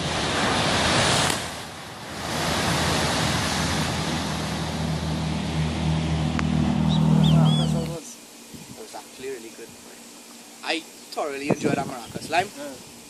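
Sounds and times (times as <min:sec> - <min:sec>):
sea surf: 0:00.0 - 0:08.1
wind: 0:00.0 - 0:13.0.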